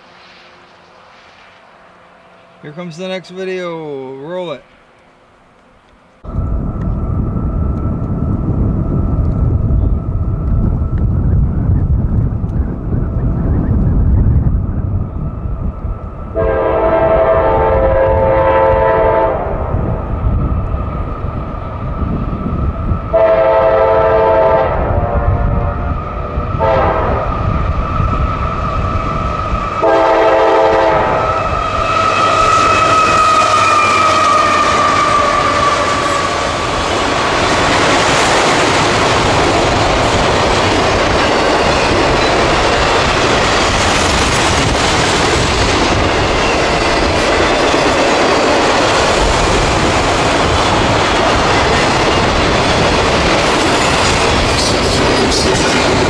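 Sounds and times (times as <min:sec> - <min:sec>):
locomotive air horn blasts: 0:16.4 - 0:19.5, 0:23.1 - 0:25.8, 0:26.6 - 0:27.3, 0:29.8 - 0:36.4
train wheels rolling: 0:25.8 - 0:56.0
clickety-clack over rail joints: 0:34.1 - 0:56.0.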